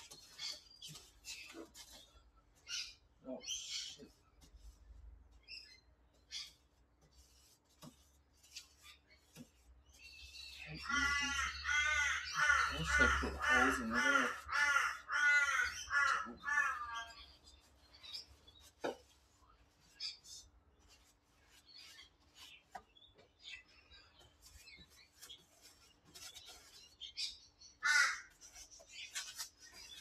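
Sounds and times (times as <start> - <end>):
brush taps and scrapes: 0.0 - 11.7, 12.3 - 14.5, 16.1 - 27.4, 28.3 - 30.0
crow cawing: 10.8 - 17.0, 27.8 - 28.3.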